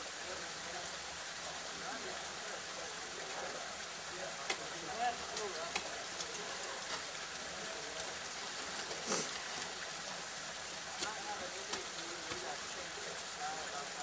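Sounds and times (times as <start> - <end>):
outdoor hiss: 0.0 - 14.0
light ticks: 4.4 - 4.7.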